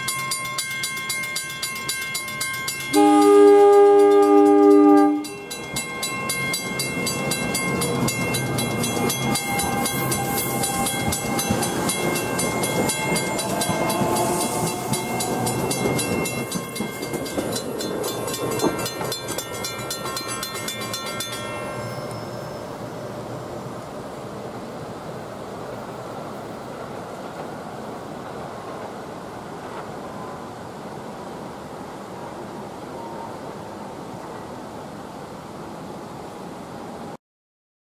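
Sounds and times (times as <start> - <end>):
crossing bell ringing: 0.0 - 23.8
train running over rails: 0.0 - 37.2
train horn: 2.9 - 5.4.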